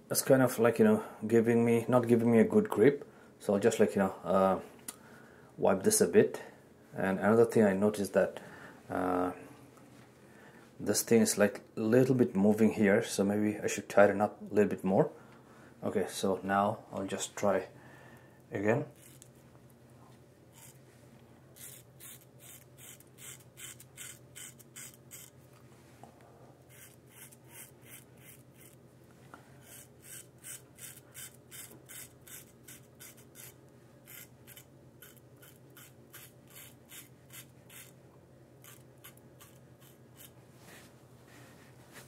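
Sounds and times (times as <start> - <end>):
razor scraping stubble: 18.9 - 19.4, 20.5 - 20.8, 21.6 - 25.4, 26.6 - 28.8, 29.6 - 38.0, 38.6 - 40.4.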